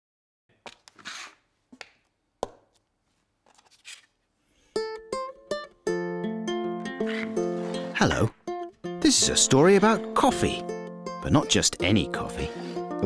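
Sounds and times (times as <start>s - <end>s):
plucked-string tune: 4.8s - 13.0s.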